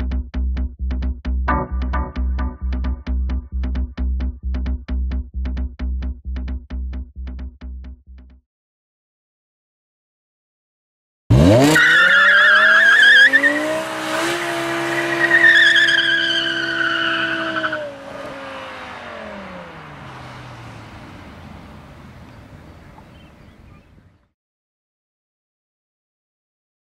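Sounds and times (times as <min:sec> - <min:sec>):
car engine revving: 0:11.3 - 0:23.2
tyres squealing: 0:11.6 - 0:13.8, 0:14.7 - 0:19.0.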